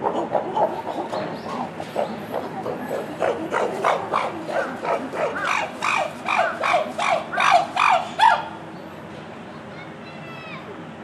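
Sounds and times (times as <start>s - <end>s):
chimpanzee hooting: 0.0s - 8.6s.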